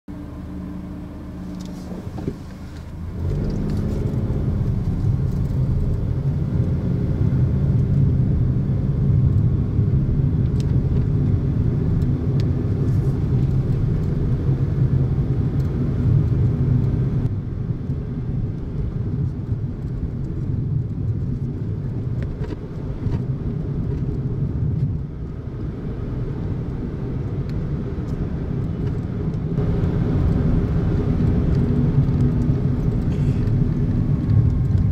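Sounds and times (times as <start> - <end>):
car engine and road noise: 0.1 - 34.9.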